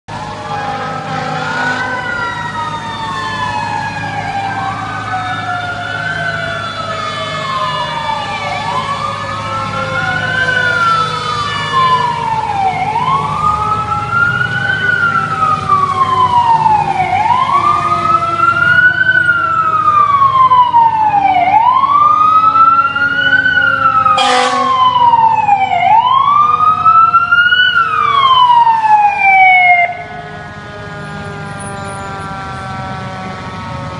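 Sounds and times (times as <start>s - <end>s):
fire truck siren wailing: 0.1s - 33.9s.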